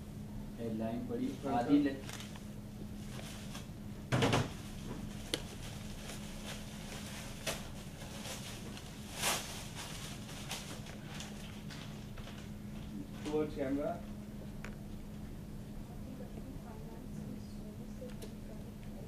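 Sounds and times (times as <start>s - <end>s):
low electrical hum: 0.0s - 19.0s
newspaper crinkling: 2.0s - 3.7s, 5.1s - 13.0s.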